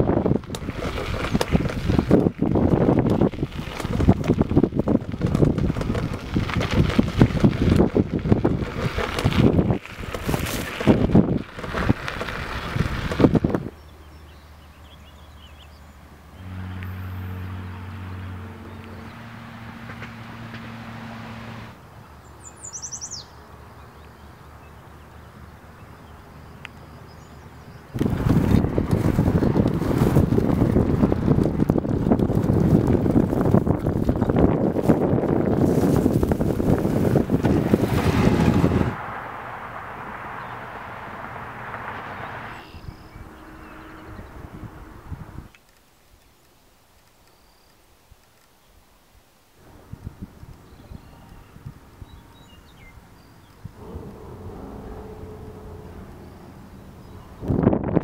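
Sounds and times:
wind buffeting microphone: 0.0s - 15.4s, 27.1s - 45.5s, 49.6s - 58.0s
bird chirp: 13.7s - 19.5s, 22.0s - 28.0s, 42.5s - 44.6s, 50.5s - 57.7s
low steady hum: 13.7s - 29.2s, 49.6s - 58.0s.

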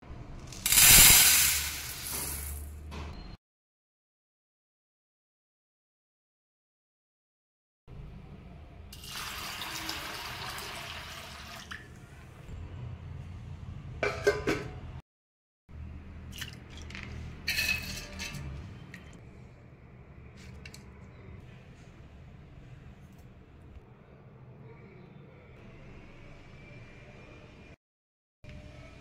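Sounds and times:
water pouring and trickling: 9.0s - 12.0s, 16.3s - 17.4s
steel utensils clinking: 16.8s - 19.1s.

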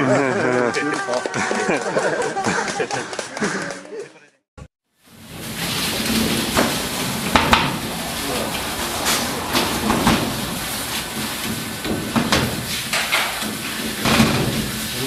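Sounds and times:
steady rushing hiss: 5.0s - 15.0s
metal baking trays clattering: 5.1s - 15.0s
sharp knocks: 7.3s - 7.9s, 11.3s - 14.8s.

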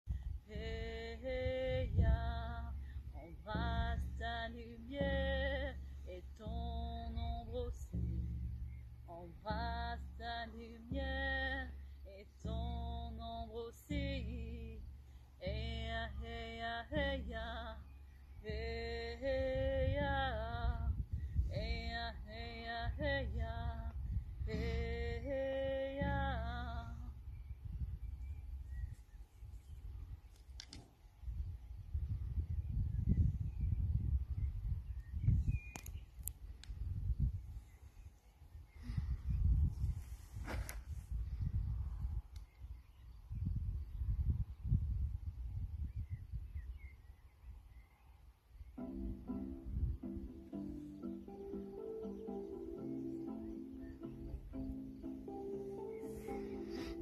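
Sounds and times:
woman singing a slow chant: 0.4s - 27.3s
frame drum: 3.4s - 11.8s, 12.4s - 16.2s.

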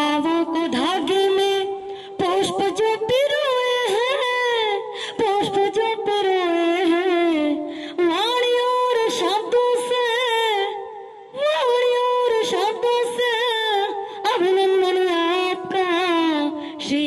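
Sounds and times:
woman singing with vibrato: 0.0s - 17.0s
singer breathing: 1.8s - 2.2s, 4.9s - 5.2s, 7.6s - 8.0s, 16.5s - 16.9s.

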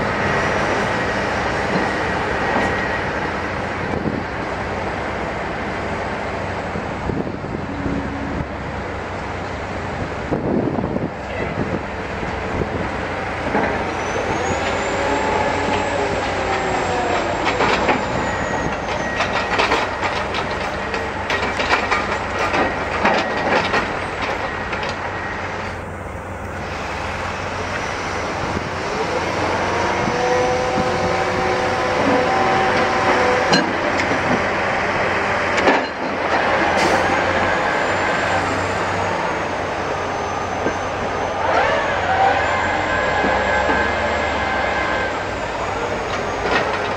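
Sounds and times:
diesel engines revving: 0.0s - 46.9s
thin high whine: 7.4s - 9.0s.

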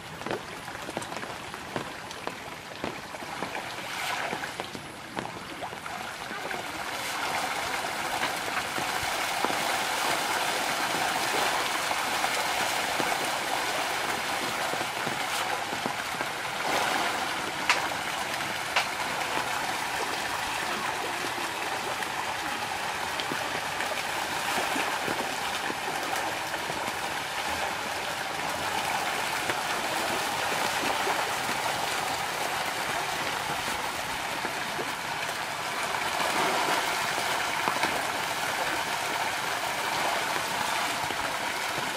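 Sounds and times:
fish splashing in a pond: 0.1s - 41.9s
sharp water slaps: 14.8s - 19.5s.

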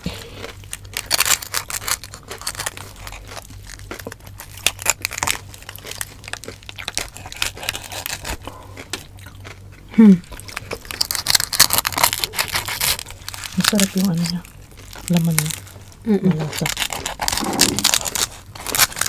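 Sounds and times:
crisp skin crackling and tearing: 0.0s - 9.5s, 10.3s - 19.0s.

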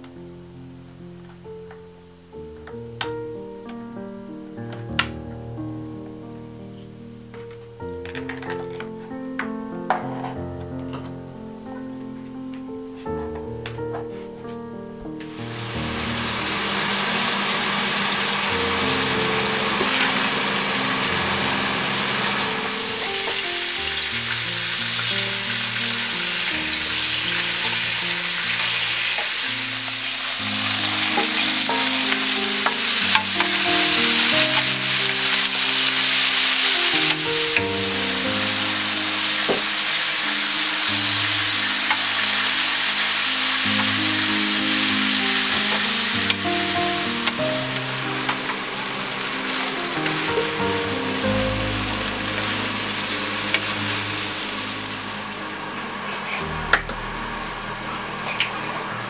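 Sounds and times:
slow background music: 0.0s - 59.0s
food sizzling in hot oil: 15.3s - 55.7s.

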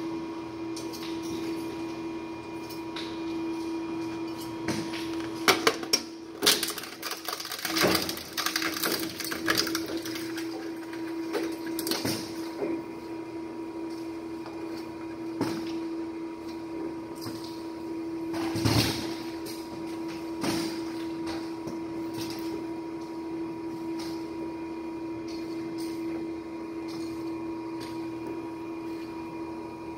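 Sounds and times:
shredder mechanical hum: 0.0s - 29.9s
electronics crunching in shredder: 5.2s - 12.4s.

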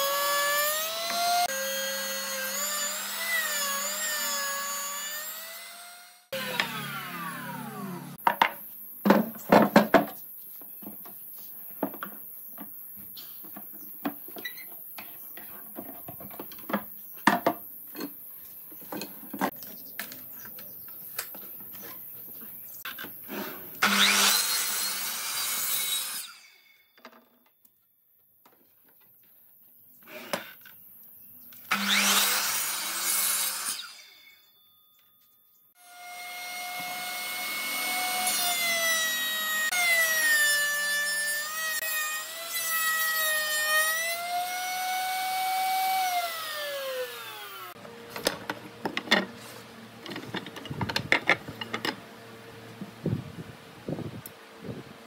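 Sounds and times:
miter saw crosscutting wood: 0.0s - 8.2s, 31.7s - 34.5s
router motor whining: 0.0s - 8.2s, 35.8s - 48.3s.

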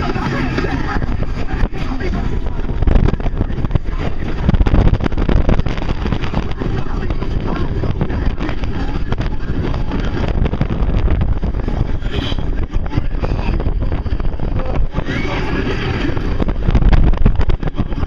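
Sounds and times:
roller coaster rumbling on track: 0.0s - 18.0s
wind buffeting microphone: 0.0s - 18.0s
riders crying out: 11.6s - 16.6s.

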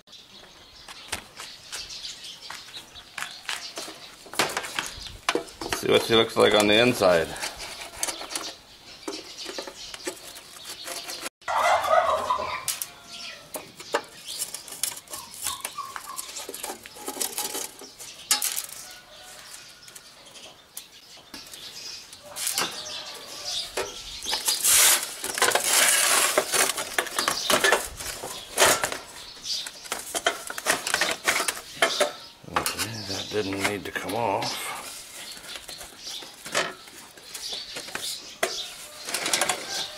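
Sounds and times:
metal clicks rattles and scrapes: 3.6s - 11.3s, 13.5s - 18.9s, 23.8s - 33.9s, 35.5s - 39.9s
chickens clucking: 10.8s - 14.2s, 15.0s - 18.3s.

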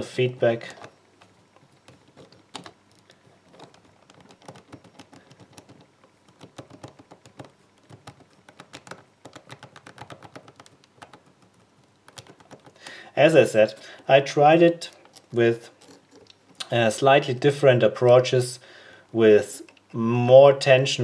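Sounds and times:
plastic lock wheels clicking: 0.4s - 13.0s.

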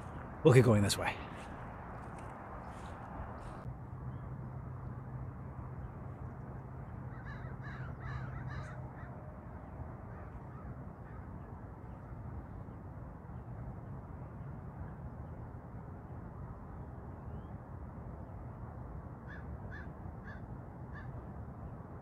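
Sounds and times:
crows cawing: 7.1s - 9.2s, 19.3s - 21.1s.

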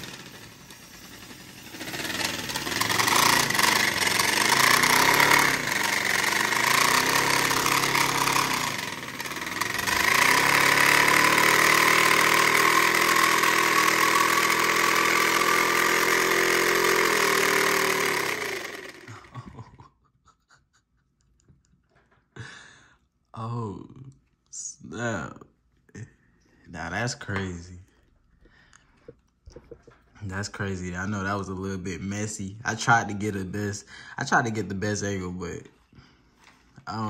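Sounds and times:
air engine rapid buzz: 0.0s - 19.1s.

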